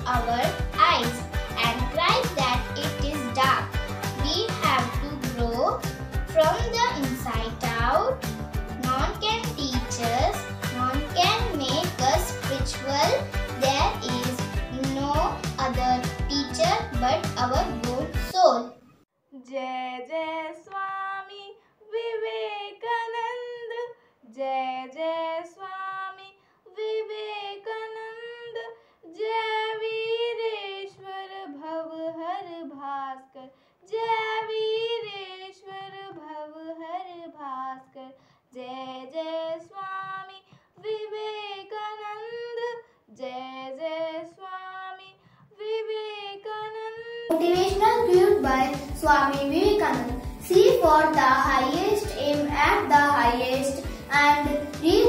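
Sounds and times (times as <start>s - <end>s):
girl singing solo: 0.0s - 5.8s, 45.6s - 55.0s.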